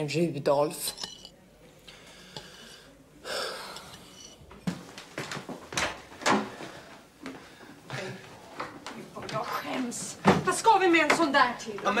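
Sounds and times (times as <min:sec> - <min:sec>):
breathy hissing exhale: 0:01.9 - 0:04.0.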